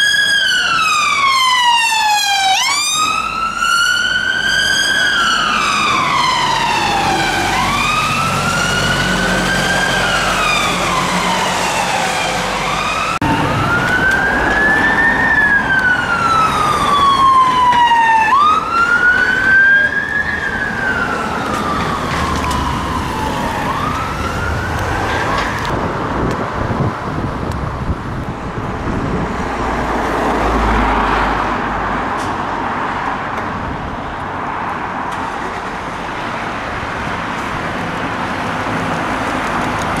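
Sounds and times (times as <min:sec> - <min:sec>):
emergency siren wailing: 0:00.0 - 0:25.9
road traffic noise: 0:00.0 - 0:40.0.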